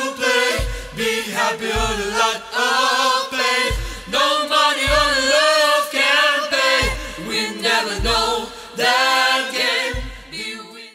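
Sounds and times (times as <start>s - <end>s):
choir-like vocal harmonies: 0.0s - 10.9s
woman singing: 3.7s - 10.9s.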